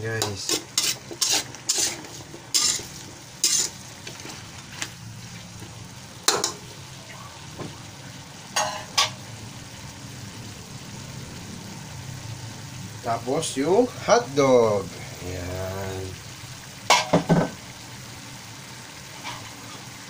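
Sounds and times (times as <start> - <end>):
utensil scraping and knocking wok: 0.0 - 6.7, 8.6 - 9.2, 16.9 - 17.6, 19.1 - 19.8
food sizzling in pan: 0.0 - 20.0.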